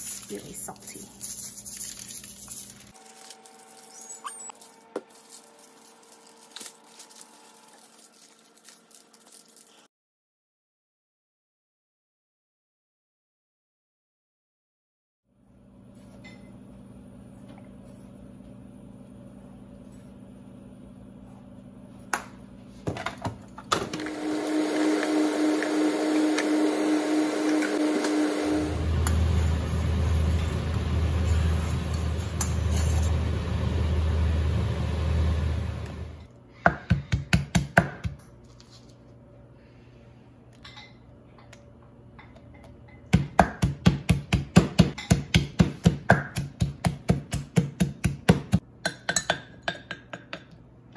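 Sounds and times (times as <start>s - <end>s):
machine whir: 23.8s - 36.3s
pestle pounding in clay mortar: 36.7s - 38.2s, 43.1s - 50.5s.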